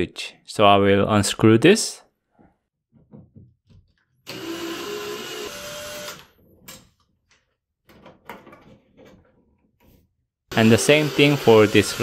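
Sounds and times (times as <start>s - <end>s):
cordless drill whining: 4.2s - 6.4s, 10.5s - 12.0s.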